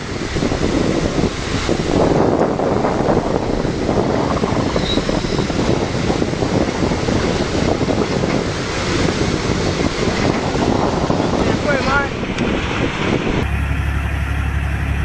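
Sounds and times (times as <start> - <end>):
wind buffeting microphone: 0.0 - 13.5.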